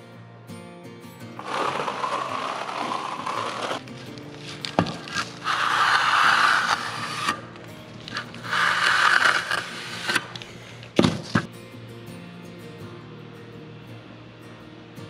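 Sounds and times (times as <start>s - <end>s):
trowel scraping wet mortar: 1.4s - 11.5s.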